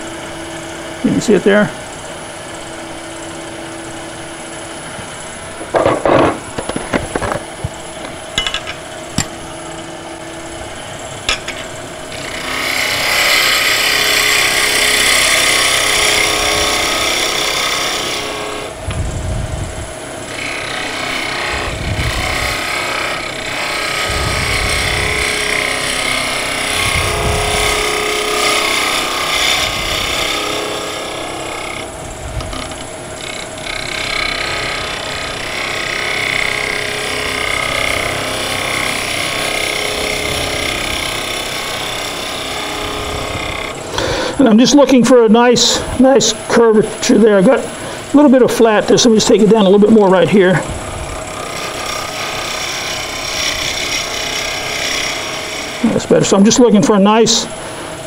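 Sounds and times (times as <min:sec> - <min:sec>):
gouge shaving wood on lathe: 0:12.0 - 0:18.8, 0:20.1 - 0:57.9
dull low thumps: 0:24.1 - 0:25.5.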